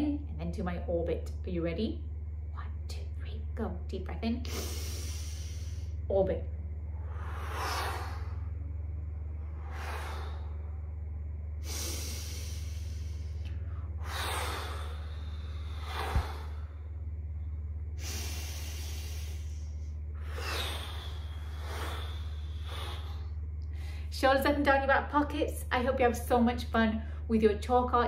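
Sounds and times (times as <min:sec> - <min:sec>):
steady low hum: 0:00.0 - 0:28.0
woman breathing deeply: 0:04.4 - 0:06.1, 0:06.8 - 0:24.1.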